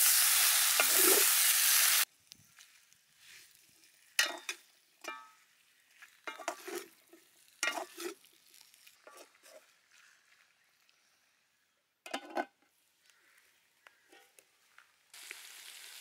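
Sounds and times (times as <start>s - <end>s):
utensils scraping a metal wok: 0.1s - 2.0s, 6.3s - 7.0s, 7.6s - 8.3s, 9.0s - 9.8s.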